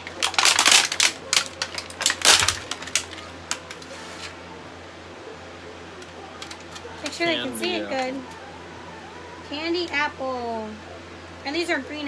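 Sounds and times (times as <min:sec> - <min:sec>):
plastic wrapper crackling: 0:00.0 - 0:04.3.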